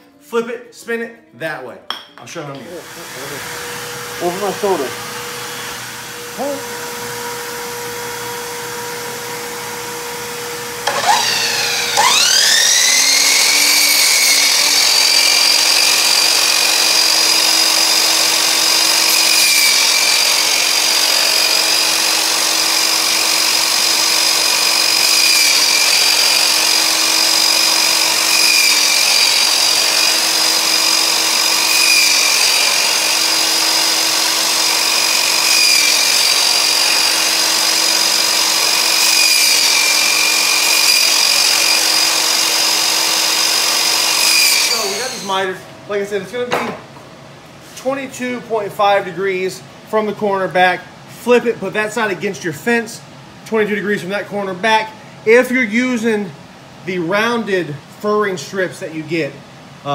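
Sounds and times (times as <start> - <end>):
power tool motor whining: 2.8 - 45.4.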